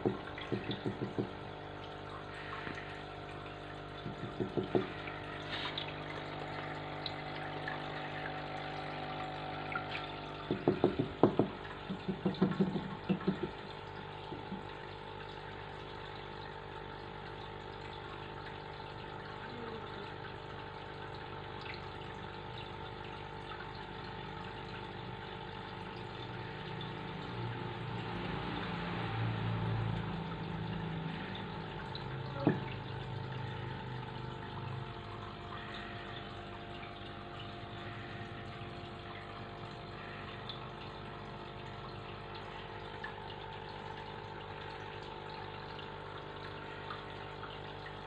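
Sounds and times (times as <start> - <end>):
aquarium pump humming: 0.0 - 48.0
water trickling: 0.0 - 48.0.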